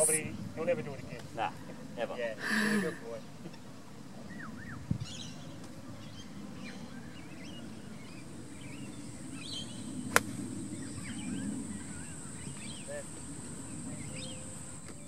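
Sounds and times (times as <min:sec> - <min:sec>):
high-pitched insect drone: 0:00.0 - 0:00.2
low outdoor noise: 0:00.0 - 0:15.0.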